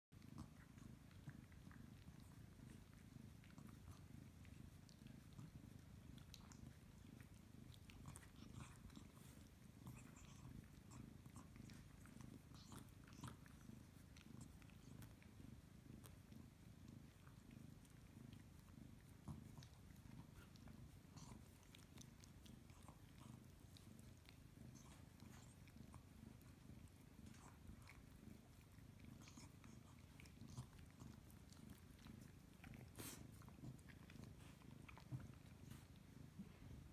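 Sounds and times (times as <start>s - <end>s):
kitten purring: 0.1s - 36.9s
dog licking fur: 19.2s - 36.8s.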